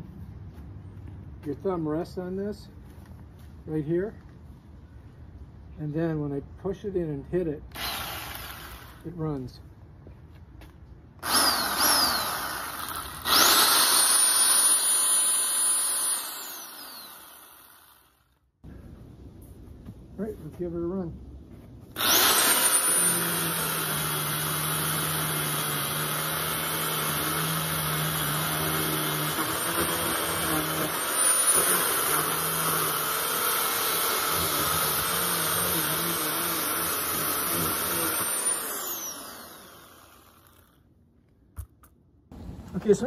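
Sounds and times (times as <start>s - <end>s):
electric chainsaw cutting wood: 7.7s - 9.1s, 11.2s - 18.3s, 22.0s - 40.8s.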